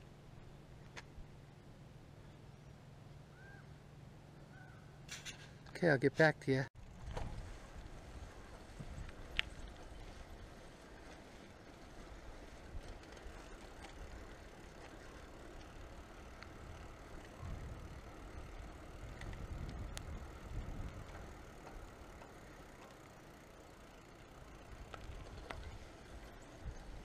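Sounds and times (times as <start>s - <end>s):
bicycle clicks and rattles: 5.0s - 5.8s, 6.8s - 27.0s
wind rumble on microphone: 6.8s - 10.6s, 17.3s - 21.4s
bicycle tyre noise: 6.8s - 27.0s.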